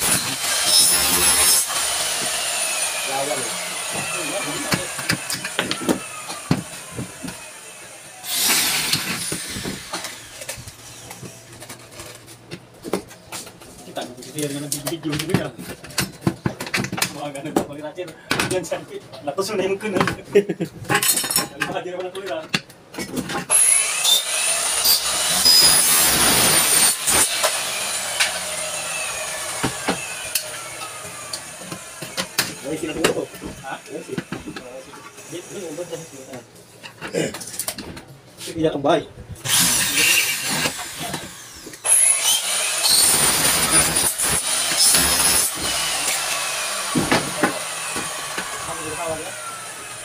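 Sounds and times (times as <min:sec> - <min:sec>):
electric drill running: 0:00.0 - 0:10.5, 0:23.5 - 0:32.8, 0:39.5 - 0:50.0.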